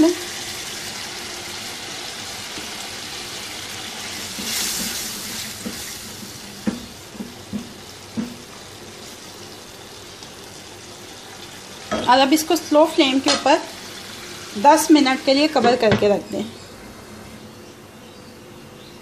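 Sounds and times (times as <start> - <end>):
food sizzling in a frying pan: 0.0 - 17.4
spatula knocking against pan: 6.6 - 8.4.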